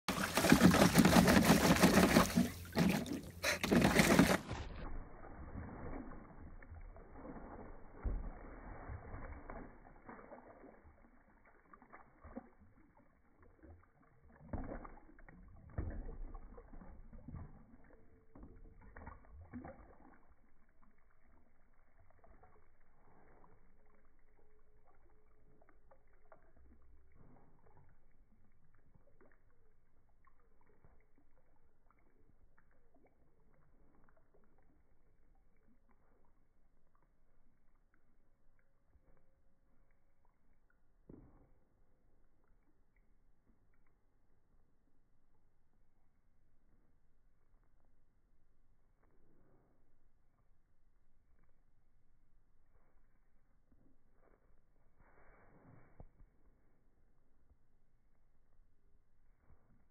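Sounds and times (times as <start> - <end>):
dog splashing in water: 0.1 - 20.5.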